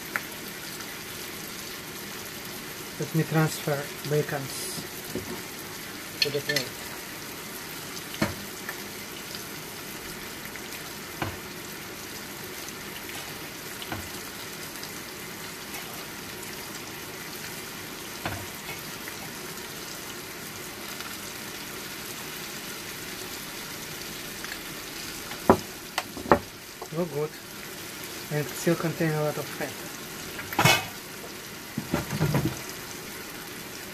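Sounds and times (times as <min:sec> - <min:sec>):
peppers sizzling in a frying pan: 0:00.0 - 0:33.9
plate knocking on counter: 0:25.5 - 0:26.5.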